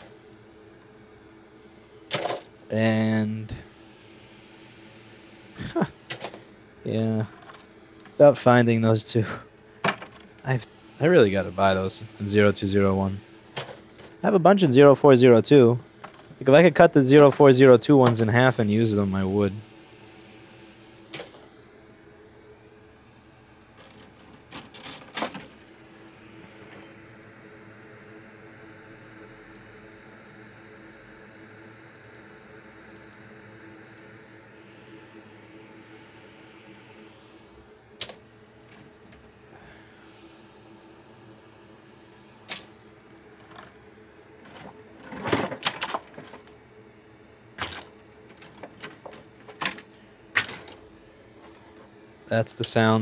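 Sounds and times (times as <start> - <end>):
steady low hum: 0.0 - 53.0
circuit boards clattering: 6.1 - 6.4, 9.8 - 10.4, 23.8 - 25.6, 44.4 - 46.5, 47.6 - 50.8.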